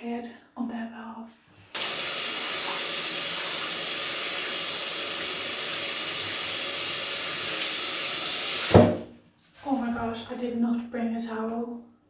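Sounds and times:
tap water running: 0:01.7 - 0:09.1
thump: 0:08.7 - 0:09.1.

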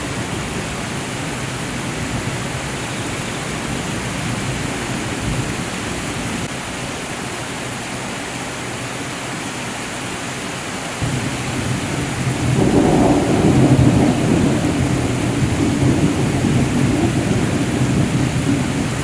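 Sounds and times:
heavy rain falling: 0:00.0 - 0:19.0
distant thunder rumbling: 0:11.0 - 0:19.0.

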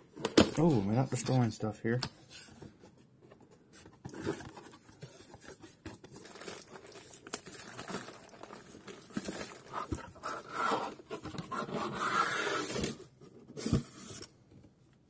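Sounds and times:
cardboard boxes scraping: 0:09.2 - 0:13.0.

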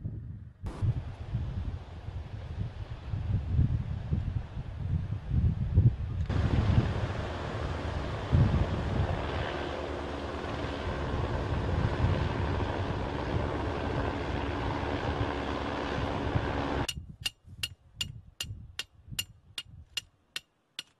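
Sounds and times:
wind buffeting microphone: 0:00.0 - 0:20.0
sharp metallic ticks: 0:16.9 - 0:20.9.

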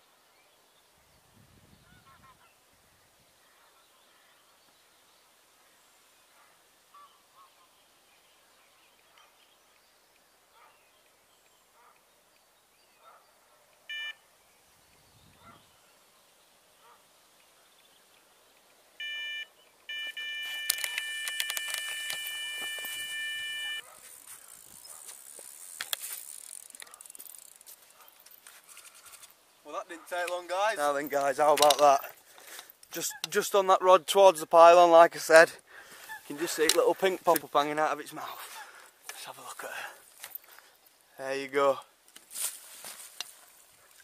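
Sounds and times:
electronic bite alarm bleeps: 0:13.9 - 0:14.2, 0:19.0 - 0:23.8
fishing reel clicking: 0:24.2 - 0:27.7.

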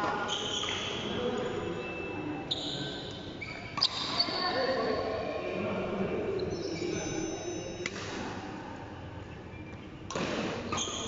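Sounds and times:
shoes squeaking on floor: 0:00.1 - 0:04.6, 0:06.4 - 0:07.8, 0:10.7 - 0:11.0
voices talking: 0:00.2 - 0:08.0.

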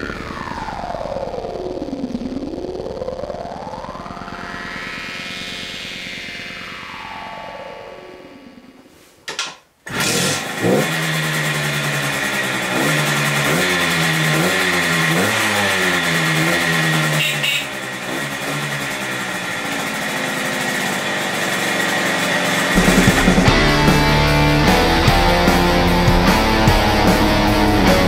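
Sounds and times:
moped engine starting and revving: 0:09.4 - 0:28.0.

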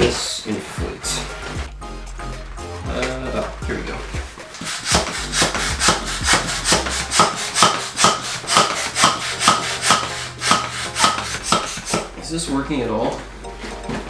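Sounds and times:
manual air pump strokes: 0:04.5 - 0:12.1.

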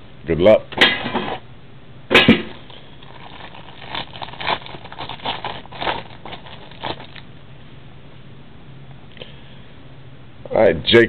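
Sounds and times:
plastic wrap crinkling: 0:02.5 - 0:07.3.

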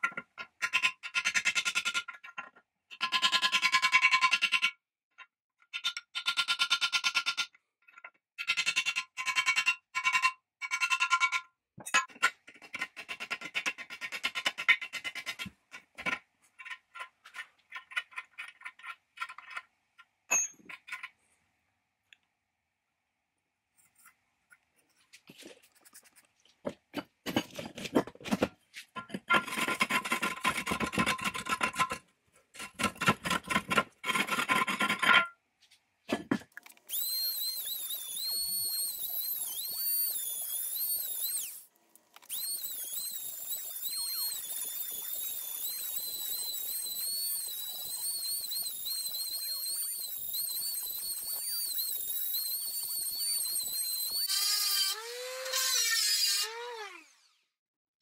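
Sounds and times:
rotary tool whining: 0:36.9 - 0:57.5.

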